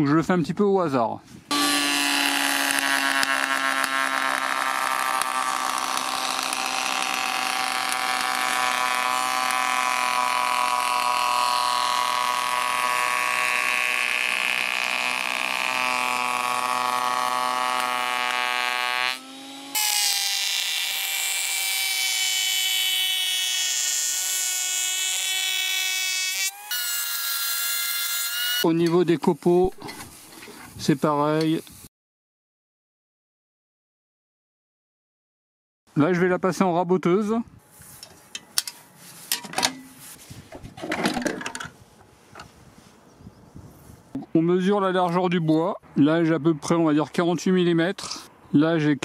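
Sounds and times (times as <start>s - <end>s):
planer machine whining: 1.5s - 28.7s.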